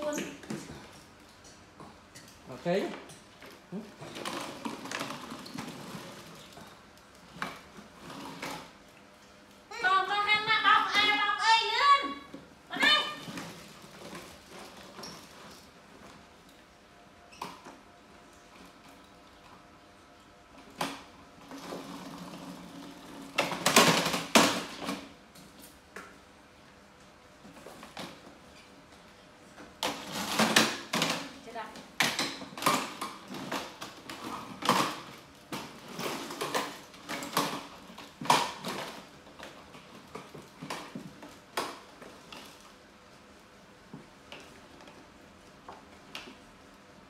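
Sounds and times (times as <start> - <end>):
plastic toy car clattering on tiles: 20.8 - 25.1, 29.8 - 31.4, 32.0 - 41.8.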